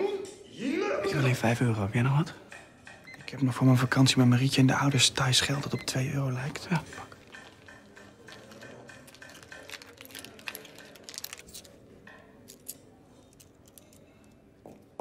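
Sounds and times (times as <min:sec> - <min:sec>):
metal chain clinking: 0:07.2 - 0:11.8, 0:12.4 - 0:14.4.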